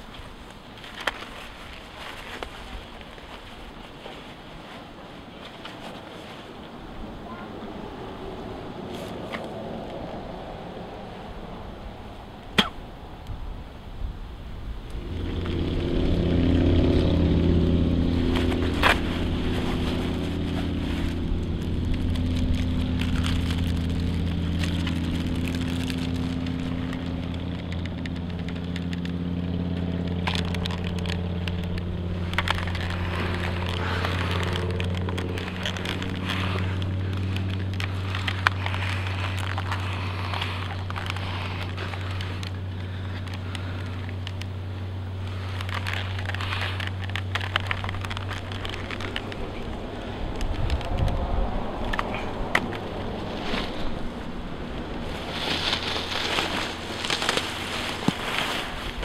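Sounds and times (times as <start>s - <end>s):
crackling and rustling: 0.0s - 59.0s
slow drone music: 14.8s - 59.0s.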